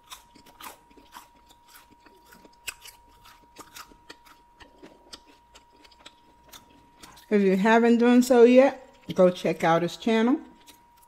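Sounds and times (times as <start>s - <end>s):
chewing with soft crunches: 0.0s - 7.4s, 8.8s - 9.4s, 10.4s - 11.0s.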